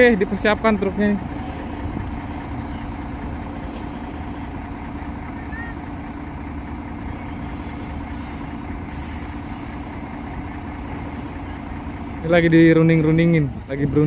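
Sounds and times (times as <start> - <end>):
truck diesel engine rumbling: 0.0 - 14.0
air hiss: 8.9 - 9.9.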